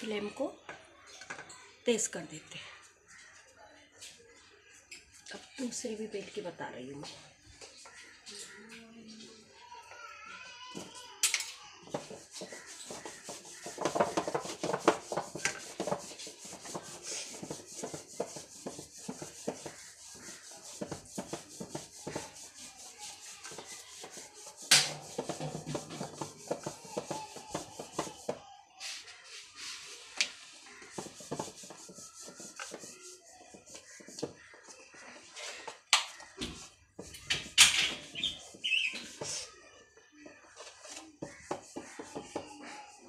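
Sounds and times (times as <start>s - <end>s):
hands patting dough: 11.9s - 28.4s, 30.7s - 34.5s
sharp knocks on steel plate: 24.7s - 26.0s.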